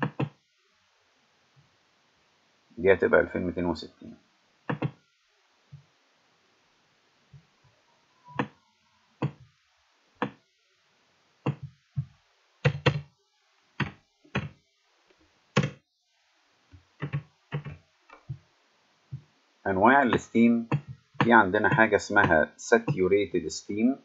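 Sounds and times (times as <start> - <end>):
computer keyboard keystrokes: 4.7 - 5.0.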